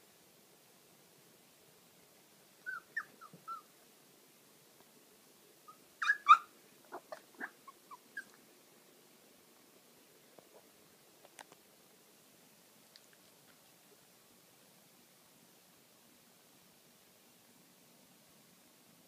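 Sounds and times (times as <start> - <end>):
puppy yipping: 2.6 - 3.7, 5.7 - 8.4.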